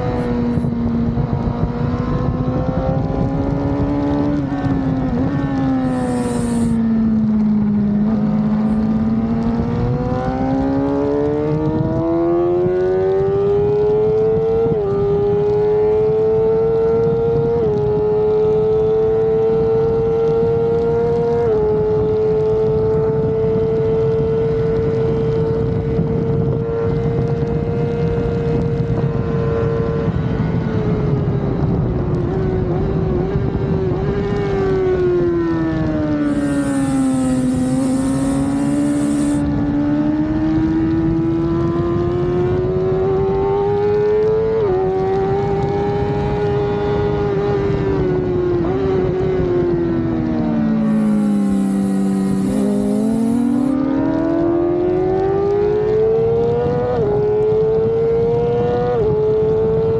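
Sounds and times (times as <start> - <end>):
wind noise: 0.0 - 12.7, 25.4 - 34.2, 36.2 - 39.6, 50.8 - 53.8
motorcycle engine revving high: 0.0 - 15.1, 36.2 - 39.6, 50.8 - 54.6.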